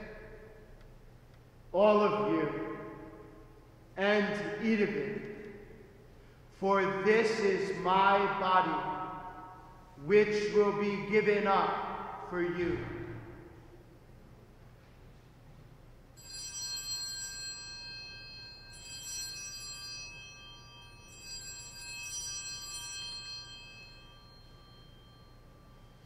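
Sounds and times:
altar bells ringing: 16.1s - 26.0s.

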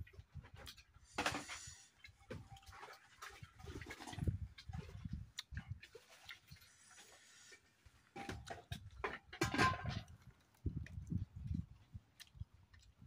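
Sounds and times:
chewing and mouth smacks: 3.8s - 7.2s, 10.5s - 13.0s.

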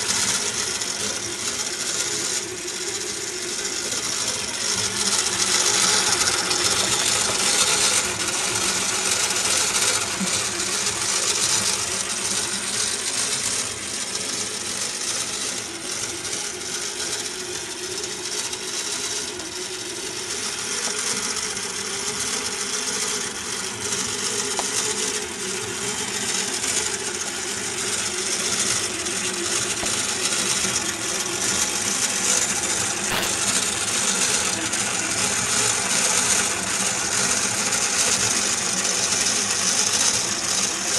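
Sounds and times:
model engine parts clattering: 27.4s - 34.5s.

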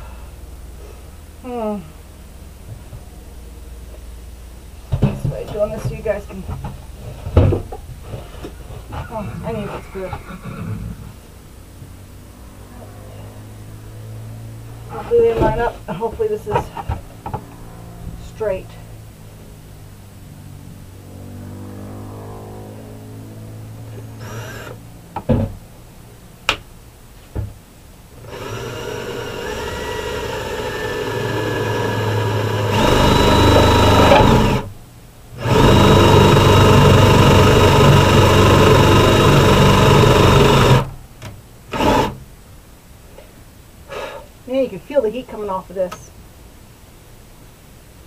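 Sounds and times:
power drill motor running: 24.2s - 24.8s, 28.2s - 34.7s, 35.4s - 40.9s, 41.7s - 42.2s
drill clicks: 28.3s - 34.7s, 35.4s - 40.9s, 41.7s - 42.2s.

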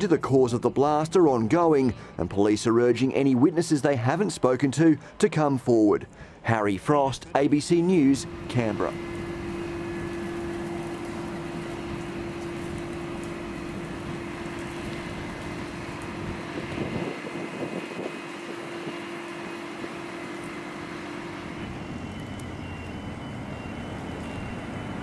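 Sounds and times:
street noise: 0.0s - 25.0s
steady mechanical hum: 7.2s - 25.0s
faint wavering sounds: 7.6s - 25.0s.

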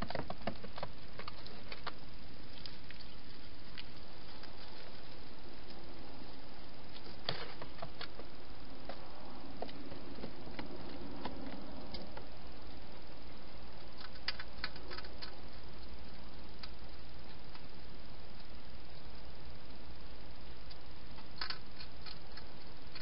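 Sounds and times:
hedgehog eating clicks and crunches: 0.0s - 9.0s, 13.8s - 17.7s, 20.6s - 23.0s
steady hiss: 0.0s - 23.0s.

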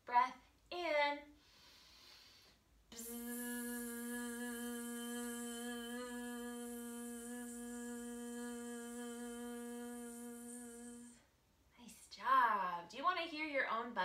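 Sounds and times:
woman humming bee breath buzz: 2.9s - 11.2s.

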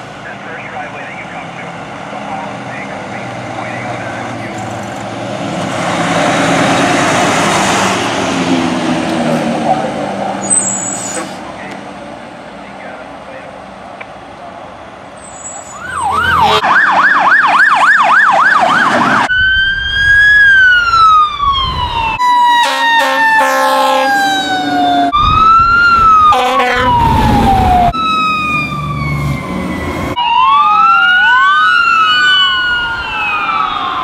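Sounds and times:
emergency vehicle sirens: 0.0s - 34.0s
low horn-like tones: 15.9s - 16.7s, 22.6s - 24.3s, 26.3s - 27.0s.

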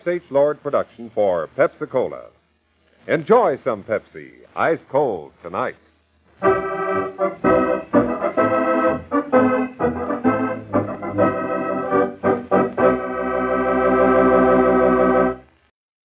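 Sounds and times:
organ playing chords: 6.4s - 15.6s.

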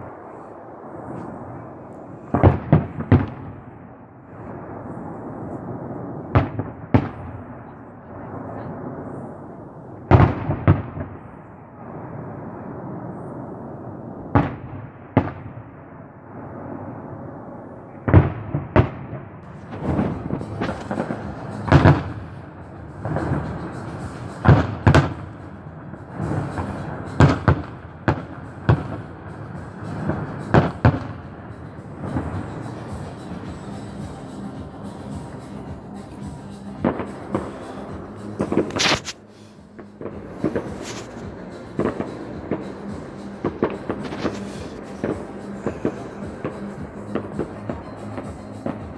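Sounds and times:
firework shells bursting: 19.4s - 22.4s, 36.2s - 48.9s.

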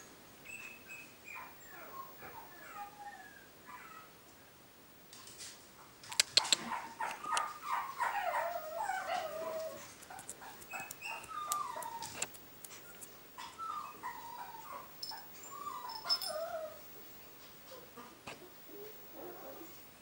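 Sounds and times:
puppy whining and yipping: 0.5s - 4.1s, 6.5s - 16.9s
sharp clicks: 6.0s - 6.7s.

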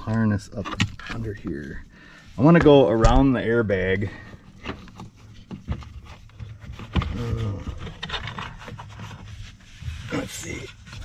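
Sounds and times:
wires and plastic trim rustling: 2.4s - 11.0s.

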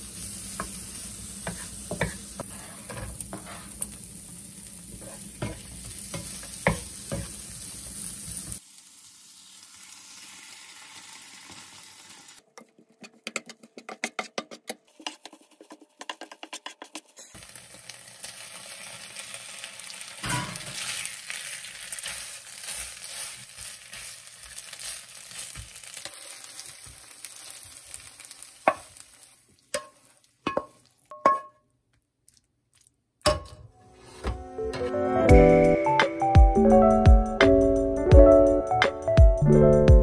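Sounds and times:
sauce sizzling in frying pan: 0.0s - 12.4s, 17.3s - 31.1s
spatula stirring: 1.4s - 4.0s, 5.0s - 7.4s, 12.6s - 17.4s, 22.0s - 31.6s.

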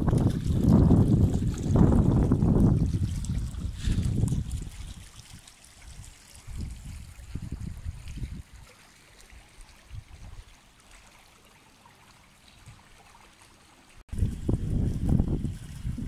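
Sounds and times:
wind buffeting microphone: 0.0s - 8.7s, 9.8s - 10.5s, 14.1s - 16.0s.

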